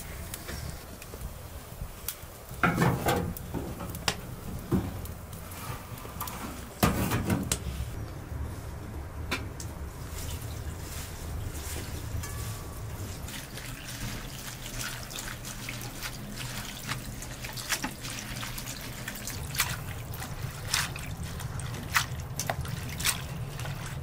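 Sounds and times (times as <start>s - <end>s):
wood fire crackling: 0.0s - 24.0s
stove door clanking shut: 2.6s - 5.0s
water pouring from kettle: 13.2s - 24.0s.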